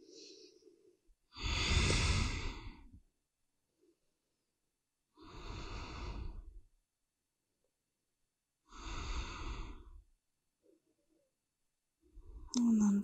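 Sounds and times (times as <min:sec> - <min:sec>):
woman breathing slowly: 0:00.0 - 0:03.0, 0:05.1 - 0:06.7, 0:08.6 - 0:11.0.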